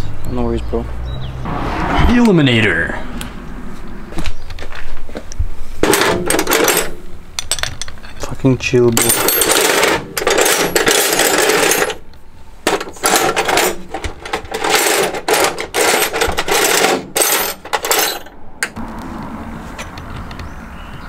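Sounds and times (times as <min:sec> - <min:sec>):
tools clattering in metal drawer: 0:05.8 - 0:12.0, 0:12.7 - 0:18.4.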